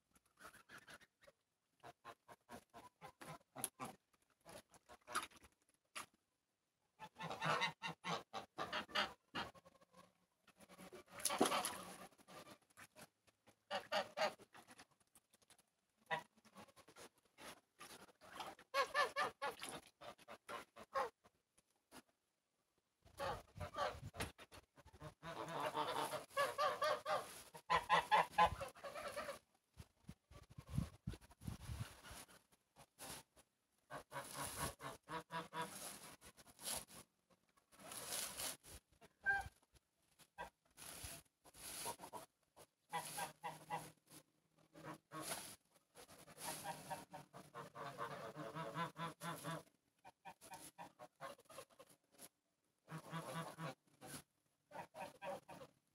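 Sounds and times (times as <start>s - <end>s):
geese honking: 7.0s - 10.1s, 24.9s - 29.4s, 33.9s - 36.8s, 41.6s - 44.0s, 46.1s - 51.6s.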